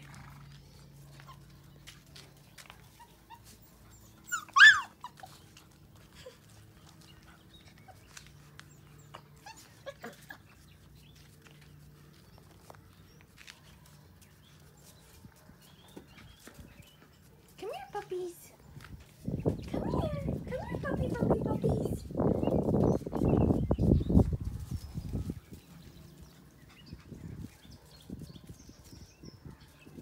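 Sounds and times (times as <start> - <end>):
puppy yelping: 2.9 - 5.5.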